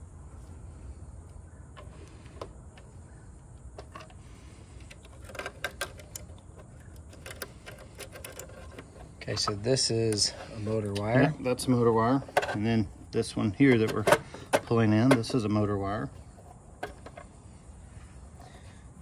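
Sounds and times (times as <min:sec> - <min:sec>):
low steady rumble: 0:00.0 - 0:19.0
wires clicking and rustling: 0:03.8 - 0:11.6.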